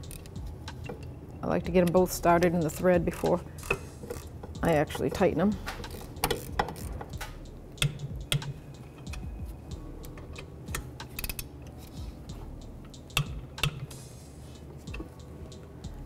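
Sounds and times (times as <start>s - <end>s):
light metal clicks and taps: 3.1s - 9.3s.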